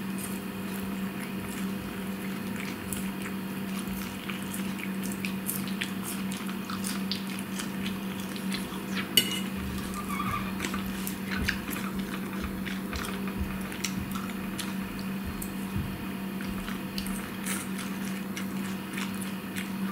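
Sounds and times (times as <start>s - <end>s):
person chewing lettuce: 0.0s - 19.9s
steady low hum: 0.0s - 19.9s
fork clinking on plate: 9.2s - 9.6s.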